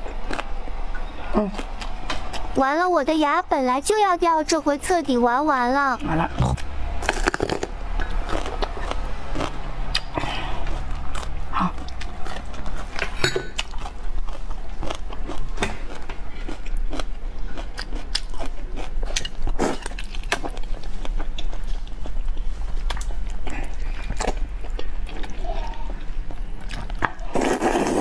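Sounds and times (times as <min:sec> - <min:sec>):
crunchy biting and chewing: 0:00.0 - 0:00.6, 0:06.3 - 0:25.7
steady low hum: 0:00.0 - 0:27.2
slurping noodles: 0:07.0 - 0:07.7, 0:27.2 - 0:28.0.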